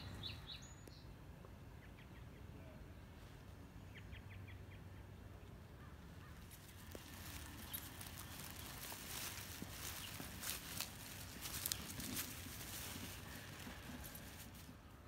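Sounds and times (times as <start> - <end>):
low outdoor rumble: 0.0 - 15.0
songbird chirps: 0.0 - 15.0
rustling noise: 6.4 - 15.0.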